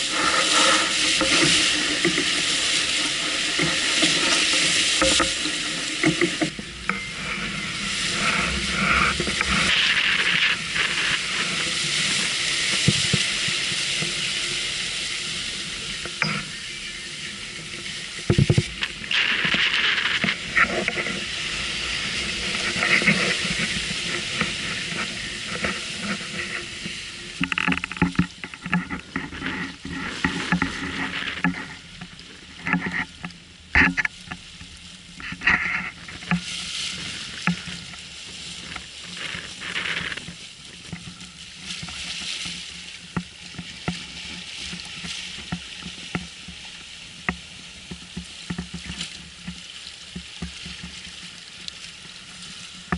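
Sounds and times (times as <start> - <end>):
water rushing along hull: 0.0 - 52.9.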